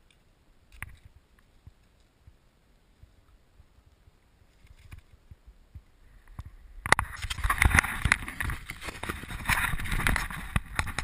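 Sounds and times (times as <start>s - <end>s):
close rustling: 7.0s - 11.0s.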